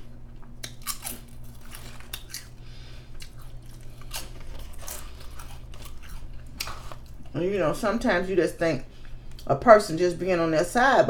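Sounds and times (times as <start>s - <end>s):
steady low hum: 0.0s - 11.0s
chips being crunched: 0.6s - 2.6s.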